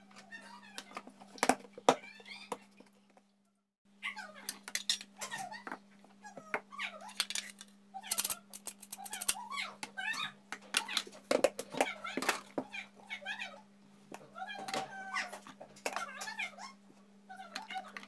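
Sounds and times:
animal crying: 9.2 - 11.0, 14.3 - 15.4.

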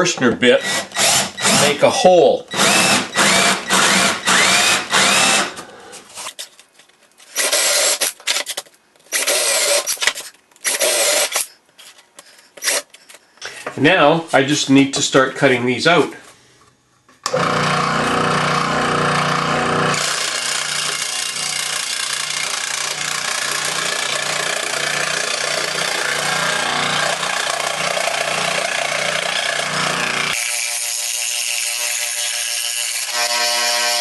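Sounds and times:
scroll saw cutting wood: 2.5 - 5.6, 9.1 - 11.6, 17.3 - 34.0.

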